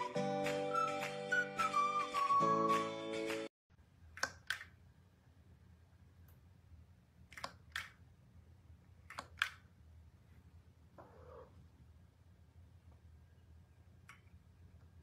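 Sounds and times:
faint low hum: 3.7s - 15.0s.

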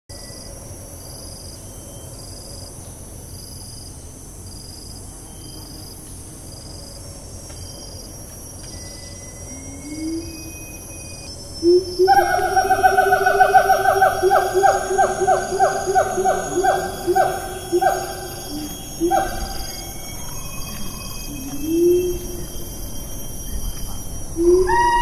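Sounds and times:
insect chorus hiss: 0.1s - 25.0s
pulsing insect call: 0.1s - 25.0s
siamang hooting: 11.6s - 25.0s.

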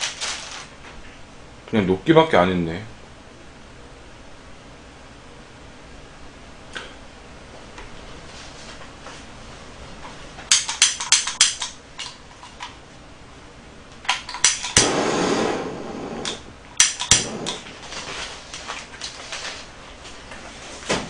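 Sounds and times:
gas torch igniter clicking: 14.1s - 17.7s
hiss of torch flame: 14.7s - 18.0s.

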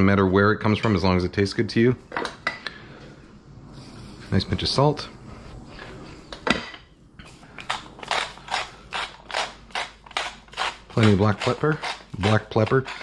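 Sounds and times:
pepper mill grinding: 7.6s - 13.0s.

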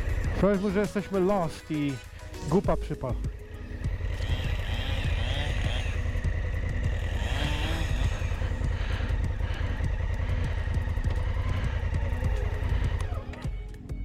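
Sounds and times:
motorcycle engine idling: 0.0s - 14.0s.

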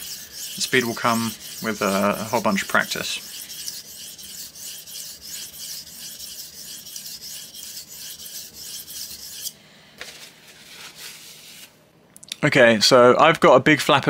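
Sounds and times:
knife rasping on sharpening plate: 0.0s - 9.6s.

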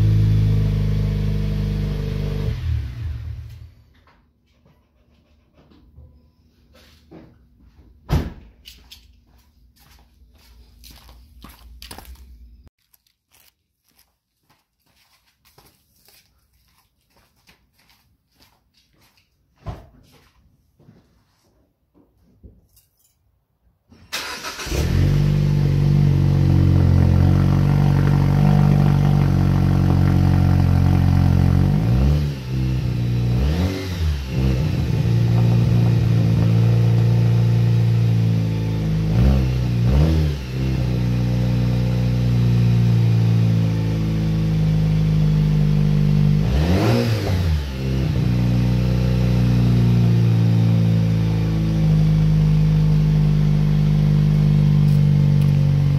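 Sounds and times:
car engine idling and revving: 0.0s - 3.8s, 24.2s - 55.9s.

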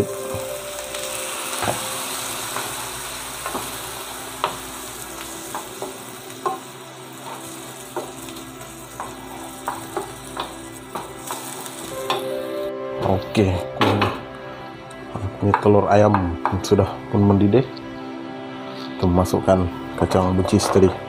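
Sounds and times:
frying pan sizzling: 0.0s - 12.7s.

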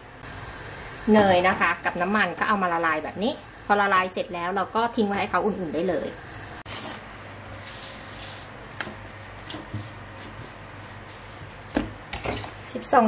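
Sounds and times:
hands rubbing dough: 7.5s - 11.8s
thump on countertop: 11.7s - 12.5s.

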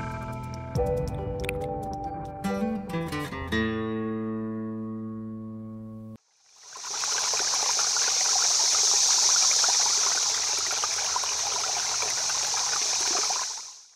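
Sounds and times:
stream trickling: 6.2s - 13.9s.

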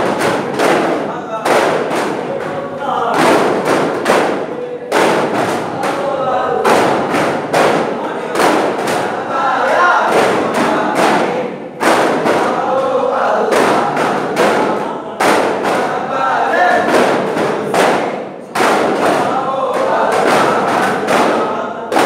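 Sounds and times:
frame drums beaten in rhythm: 0.0s - 22.0s
men chanting in chorus: 0.0s - 22.0s.

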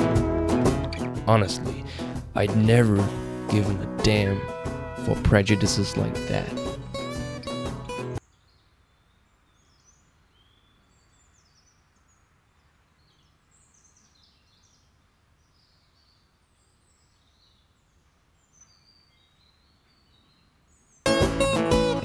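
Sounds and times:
faint bird chirps: 8.2s - 21.1s.

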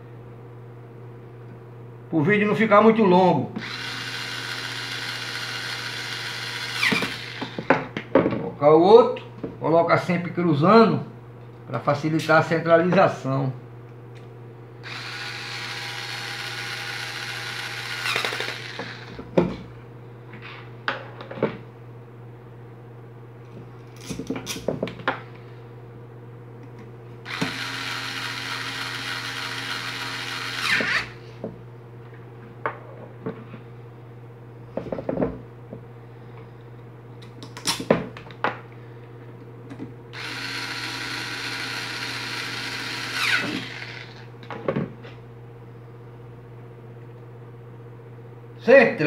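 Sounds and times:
steady low hum: 0.0s - 49.0s
electric screwdriver running: 3.6s - 7.7s, 14.8s - 19.2s, 27.2s - 31.2s, 40.2s - 44.2s.

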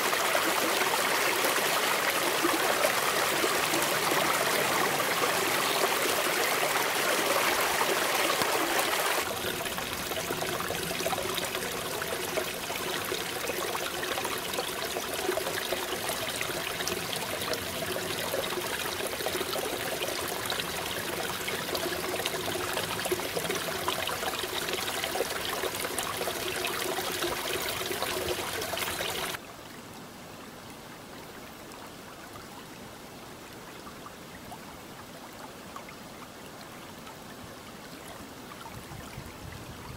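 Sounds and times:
creek trickling over rocks: 0.0s - 30.0s.

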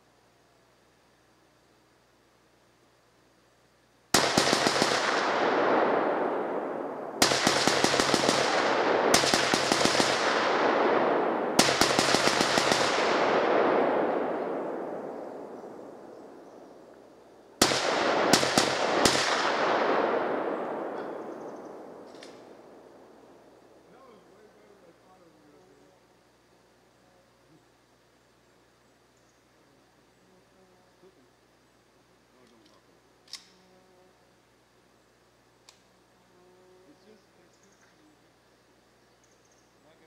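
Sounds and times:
rifle gunfire with echo: 4.1s - 16.8s, 17.6s - 23.4s.

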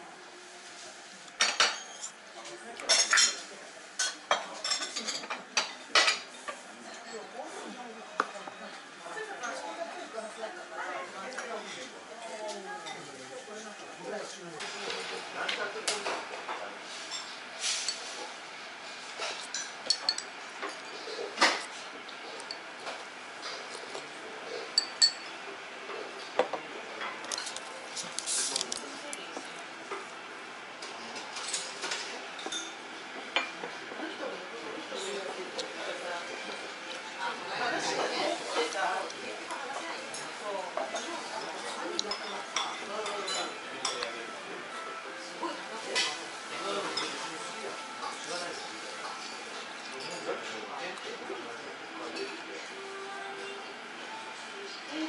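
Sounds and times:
restaurant background: 0.0s - 55.0s
chopsticks clinking on ceramic: 19.2s - 20.9s, 24.8s - 25.3s.

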